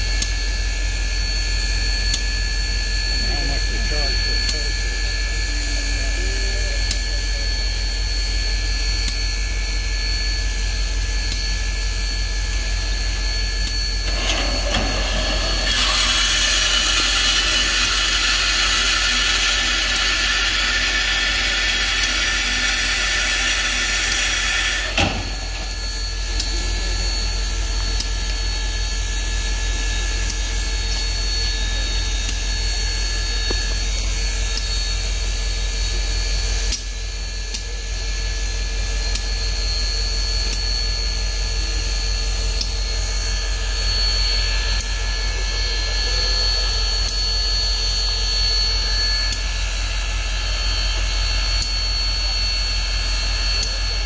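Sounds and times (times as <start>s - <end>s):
machinery hum and whine: 0.0s - 54.0s
loud hiss of steam: 14.1s - 25.9s.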